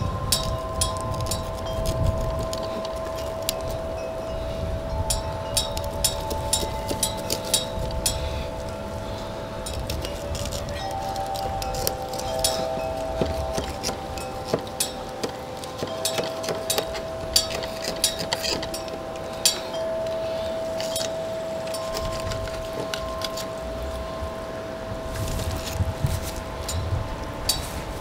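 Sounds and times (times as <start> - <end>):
soft music of held tones: 0.0 - 28.0
knife clicking and scraping on bones: 0.3 - 3.8, 5.1 - 8.2, 9.6 - 19.8, 20.8 - 23.6.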